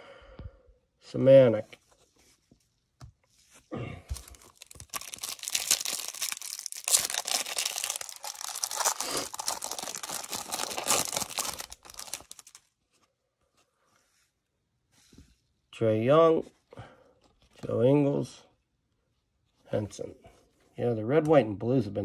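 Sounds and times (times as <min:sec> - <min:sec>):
plastic wrapper tearing and crumpling: 0:04.1 - 0:12.7.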